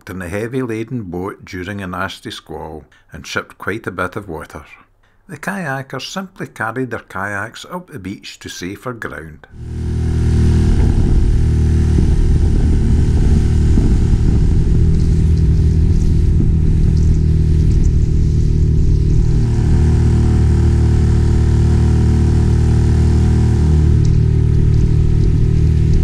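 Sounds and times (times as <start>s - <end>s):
outboard motor running: 9.6s - 26.0s.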